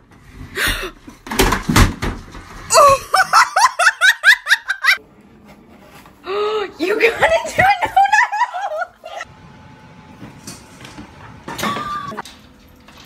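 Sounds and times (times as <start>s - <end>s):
tv crashing to floor: 1.2s - 2.7s
person laughing high-pitched: 2.7s - 5.0s, 7.2s - 9.2s.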